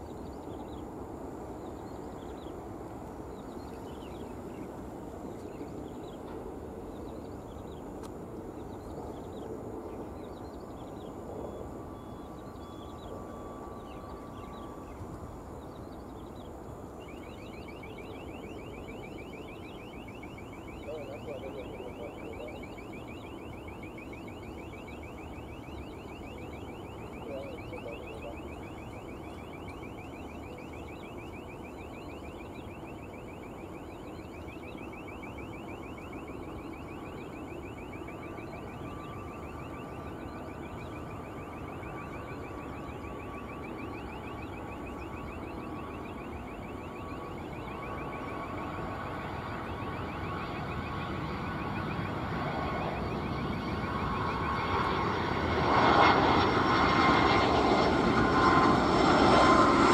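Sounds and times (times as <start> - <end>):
engine whine: 0.0 - 59.9
jet engine noise: 0.0 - 59.9
rapid high-pitched chirping: 15.6 - 55.1.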